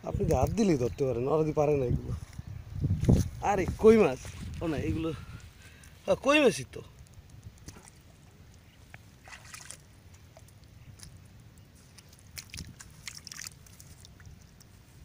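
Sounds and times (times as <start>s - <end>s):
crackling clicks of mud: 6.7s - 14.8s
water and mud sloshing: 7.6s - 15.0s.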